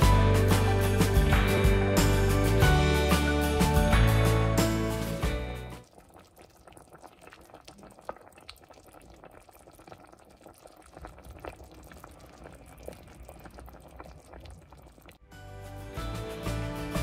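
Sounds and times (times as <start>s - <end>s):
background music: 0.0s - 5.8s, 15.2s - 17.0s
broth boiling in a pot: 5.8s - 15.2s.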